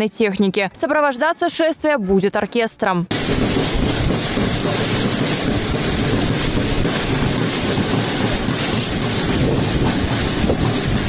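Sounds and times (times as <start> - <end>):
wind buffeting microphone: 3.1 - 11.0.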